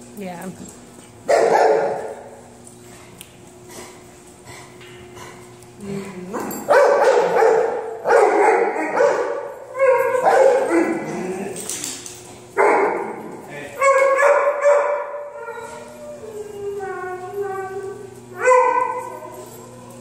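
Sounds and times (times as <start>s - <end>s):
dog barking: 1.3s - 2.2s, 6.7s - 11.1s, 12.6s - 13.1s, 13.8s - 15.2s.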